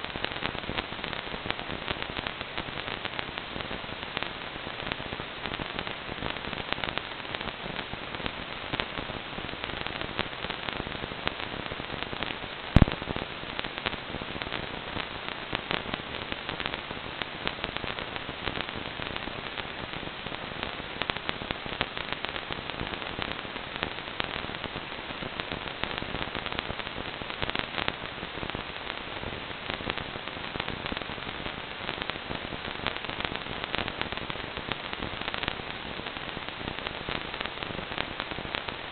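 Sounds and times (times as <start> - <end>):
crackling static hiss: 0.0 - 38.9
loud sharp pop: 12.8 - 13.2.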